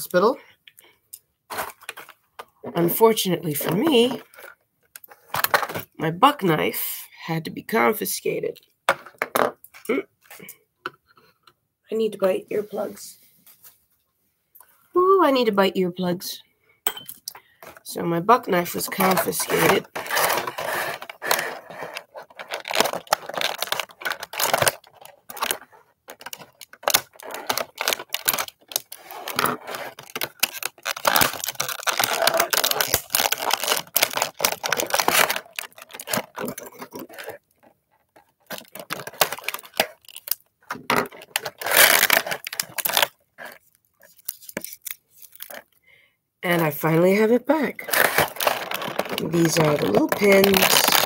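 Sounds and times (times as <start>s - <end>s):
plastic packaging crackling: 18.5s - 45.8s, 47.8s - 51.0s.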